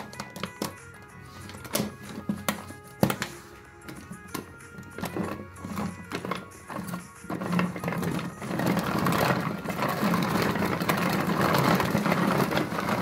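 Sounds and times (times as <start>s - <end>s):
food chopper blades whirring: 4.2s - 13.0s.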